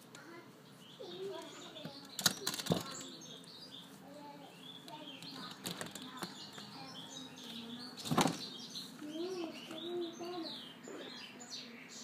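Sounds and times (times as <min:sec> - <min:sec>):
small birds chirping: 0:00.0 - 0:12.0
sharp clicks and rustles: 0:01.2 - 0:03.6, 0:04.8 - 0:06.7, 0:07.4 - 0:09.8.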